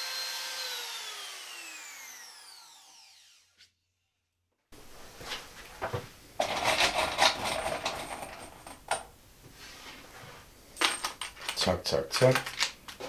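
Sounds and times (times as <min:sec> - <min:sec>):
small metal parts clinking: 0:10.8 - 0:12.8.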